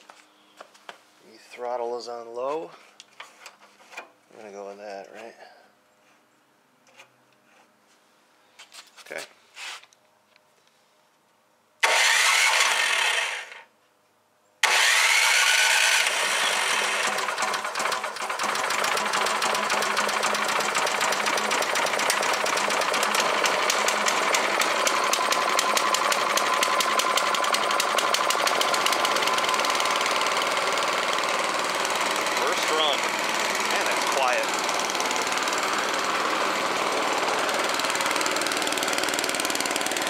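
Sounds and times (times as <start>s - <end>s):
snowblower engine running: 11.8s - 13.6s, 14.6s - 40.0s
electric starter whine: 11.8s - 13.7s, 14.6s - 40.0s.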